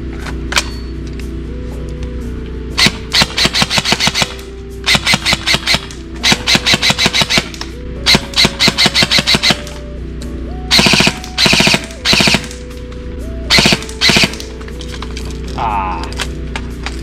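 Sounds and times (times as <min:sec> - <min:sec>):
background music: 0:00.0 - 0:17.0
airsoft rifle full-auto bursts: 0:02.8 - 0:09.7, 0:10.7 - 0:12.6, 0:13.5 - 0:14.5.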